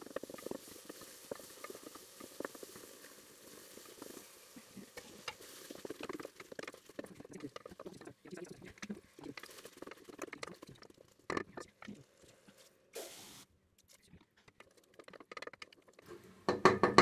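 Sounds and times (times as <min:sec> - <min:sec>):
spatula stirring potatoes in pot: 0:00.0 - 0:17.0
spatula knocking on pot: 0:16.5 - 0:17.0.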